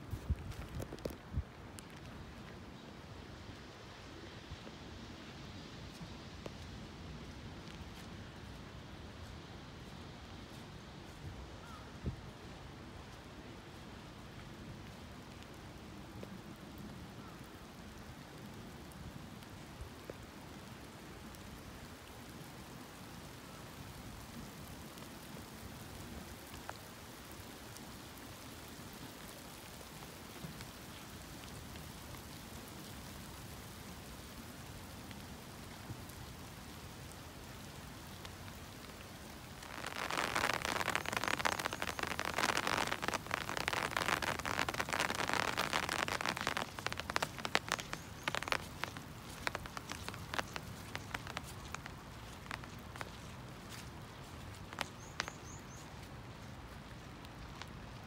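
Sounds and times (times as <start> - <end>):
faint steady hiss: 0.0 - 58.0
hail pelting down: 38.2 - 52.8.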